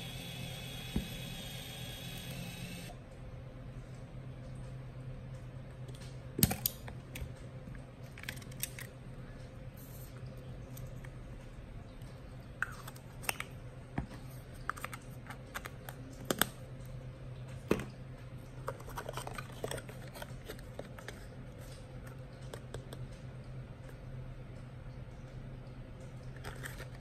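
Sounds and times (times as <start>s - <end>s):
low steady hum: 0.0s - 27.0s
hands handling small items: 18.6s - 21.8s.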